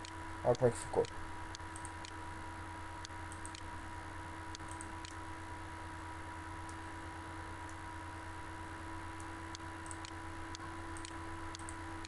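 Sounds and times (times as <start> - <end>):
electrical hum and hiss: 0.0 - 12.0
computer mouse clicks: 1.0 - 2.2, 3.0 - 3.7, 4.5 - 5.2, 9.2 - 11.8.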